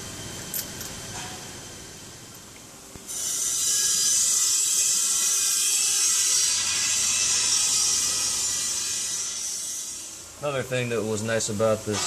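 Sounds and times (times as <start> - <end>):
high-pitched air hiss: 3.1 - 12.0.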